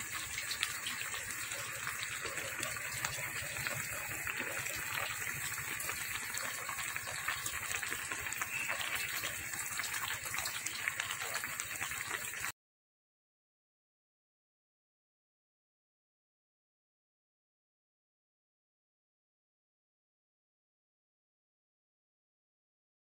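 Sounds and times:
broth bubbling in pan: 0:00.0 - 0:12.6.

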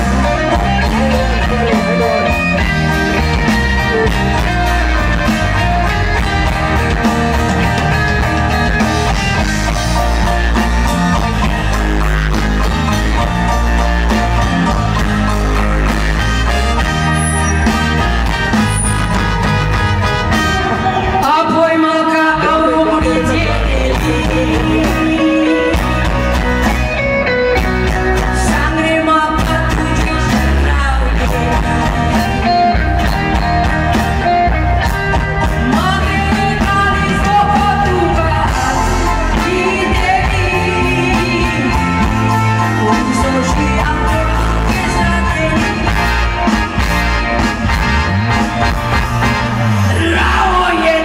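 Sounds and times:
woman singing lead: 0:00.0 - 0:09.8, 0:20.5 - 0:26.5, 0:27.5 - 0:46.8, 0:49.8 - 0:51.0
bass guitar: 0:00.0 - 0:51.0
drums: 0:00.0 - 0:51.0
electric guitar: 0:00.0 - 0:51.0
keyboards: 0:00.0 - 0:51.0.

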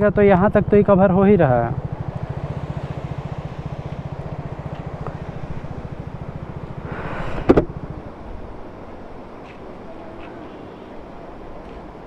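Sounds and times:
motorcycle engine idling: 0:00.0 - 0:12.0
sharp clunk: 0:07.4 - 0:07.7.

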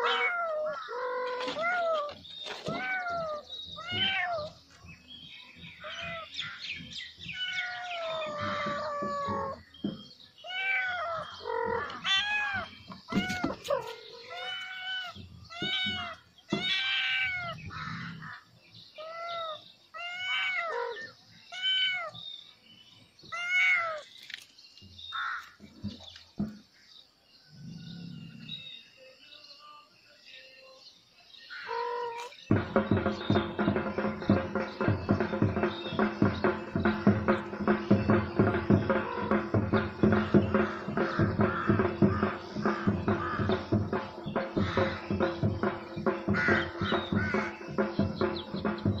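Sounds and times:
kitten meowing: 0:00.0 - 0:02.1, 0:02.7 - 0:04.6, 0:07.3 - 0:09.6, 0:10.5 - 0:17.6.

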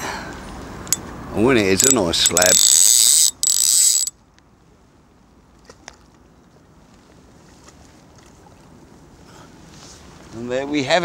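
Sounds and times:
fishing reel ratchet buzzing: 0:01.7 - 0:04.1
faint rustles: 0:05.6 - 0:10.6.

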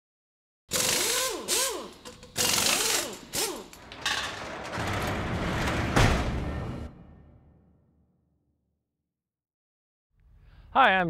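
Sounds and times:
mechanical clatter bursts: 0:00.7 - 0:06.8
low rumble: 0:04.3 - 0:07.8
impact hit: 0:04.8 - 0:08.0.

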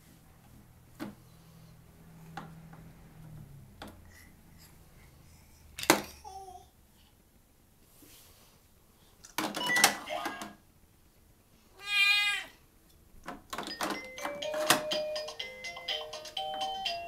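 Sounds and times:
toy electronic tune: 0:13.7 - 0:17.0.

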